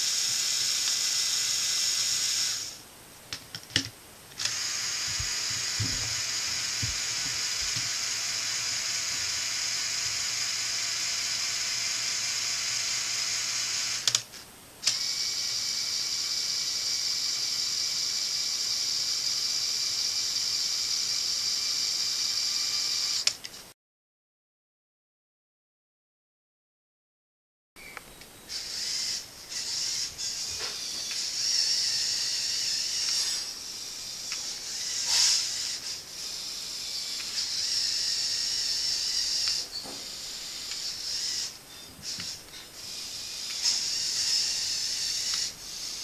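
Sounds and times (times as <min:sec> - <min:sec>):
electric motors whining: 0:04.4 - 0:14.2, 0:14.8 - 0:23.4, 0:28.5 - 0:46.0.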